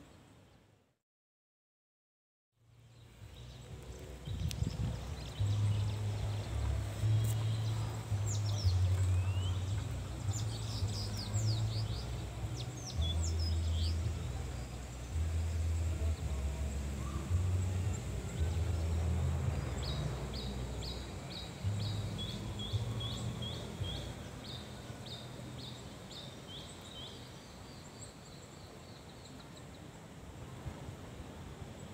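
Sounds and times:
low bass music: 2.6 - 26.1
small birds chirping: 2.9 - 30.0.

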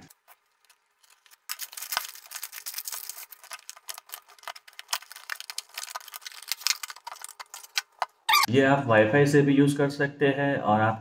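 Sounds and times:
packaging crackling and clicking: 0.0 - 8.3.

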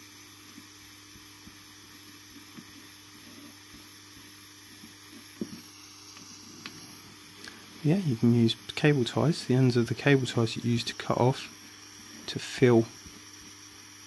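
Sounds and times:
steady hum and hiss: 0.0 - 14.0
soldering iron tapping plastic: 4.8 - 6.8.

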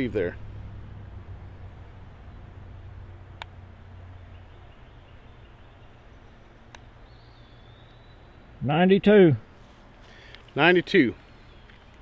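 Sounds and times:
low hum: 0.0 - 8.6.

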